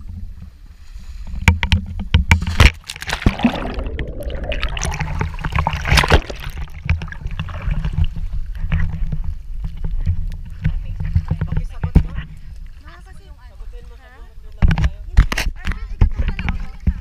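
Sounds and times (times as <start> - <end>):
water splashing and sloshing: 0.8 - 12.8
knocks and thumps on camera: 1.4 - 12.2
plunge into water: 2.3 - 8.8
rushing churning water: 2.6 - 8.4.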